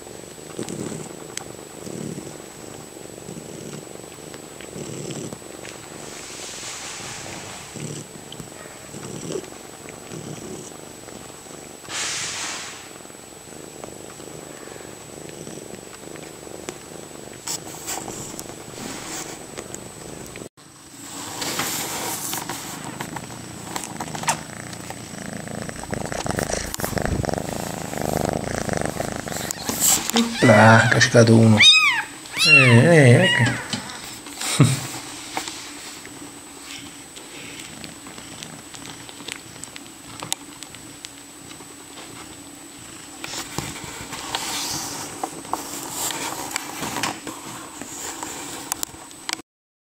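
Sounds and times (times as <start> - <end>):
cats purring: 0.0 - 49.4
clicks and rustling on cushion: 15.2 - 20.5, 21.3 - 30.4, 33.4 - 49.4.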